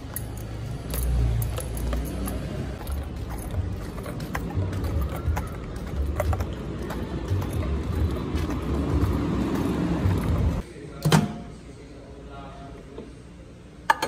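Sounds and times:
street ambience rumble: 0.0s - 10.7s.

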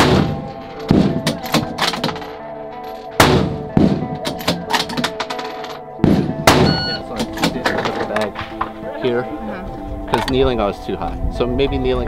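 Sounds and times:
rifle shots cracking: 0.0s - 2.1s, 3.2s - 5.3s, 6.0s - 7.8s
background music with sustained tones: 0.0s - 12.0s.

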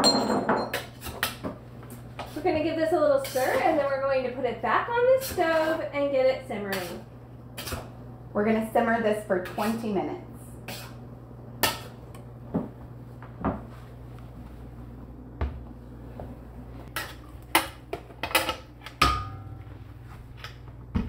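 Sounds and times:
pot clanking: 0.0s - 1.3s, 18.2s - 19.6s
metal spoon scraping in pot: 3.1s - 3.9s, 6.6s - 7.9s, 10.6s - 11.0s.

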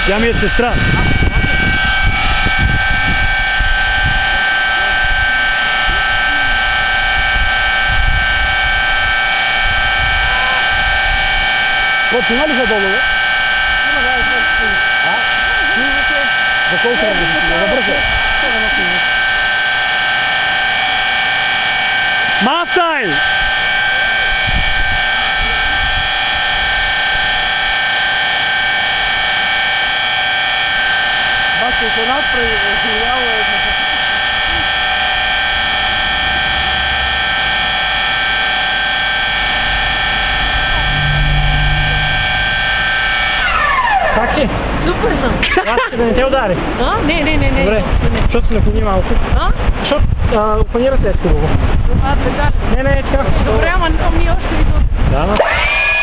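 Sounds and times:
gusty low rumble: 0.0s - 21.8s, 23.2s - 27.8s, 32.3s - 55.8s
high electrical whine: 0.0s - 56.0s
hum of high tones: 0.0s - 56.0s
faint low rumble: 35.2s - 45.4s.

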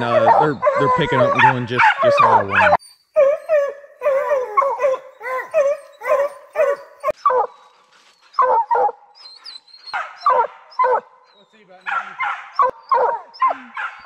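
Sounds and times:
hounds baying: 0.0s - 14.0s.

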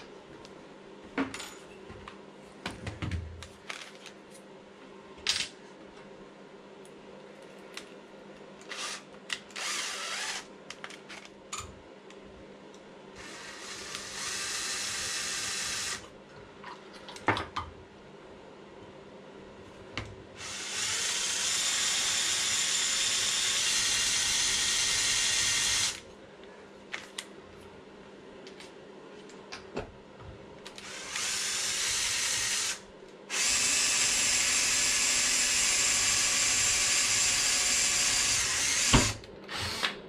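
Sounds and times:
power drill boring into metal: 9.6s - 10.4s, 30.8s - 39.9s.

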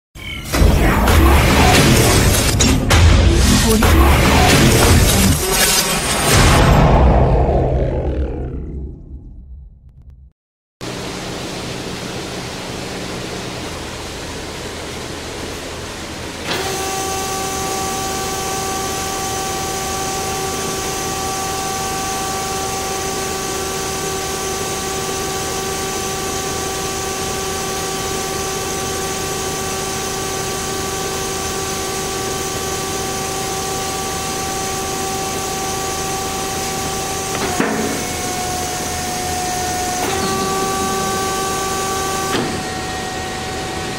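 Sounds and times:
band saw whine: 0.2s - 9.3s, 10.8s - 43.9s
band saw humming: 16.4s - 43.9s.

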